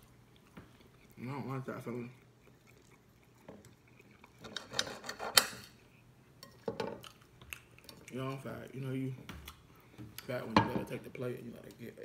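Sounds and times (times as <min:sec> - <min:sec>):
knife and fork scraping a plate: 0:04.4 - 0:05.8.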